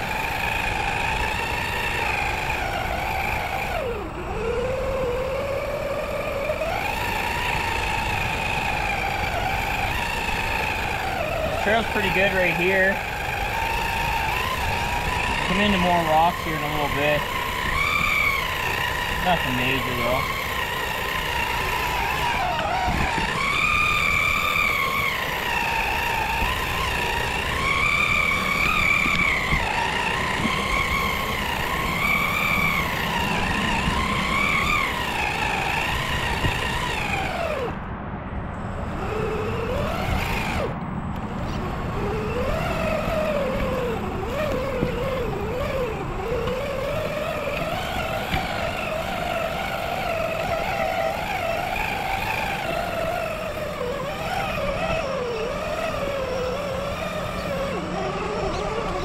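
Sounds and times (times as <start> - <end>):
electric motor and gears whining: 0.0 - 59.0.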